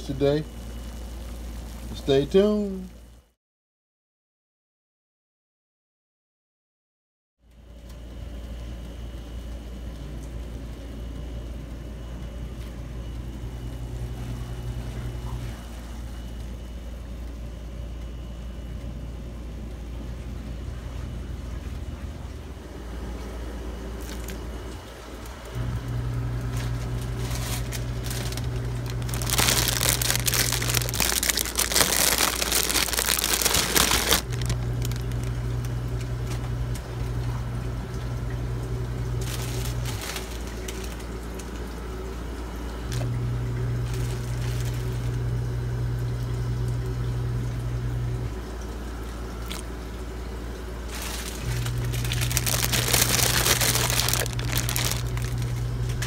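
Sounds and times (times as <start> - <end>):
pot boiling hissing and crackling: 0.0 - 3.2, 23.8 - 37.2, 38.6 - 42.0, 50.6 - 56.0
steady deep hum: 9.9 - 56.0.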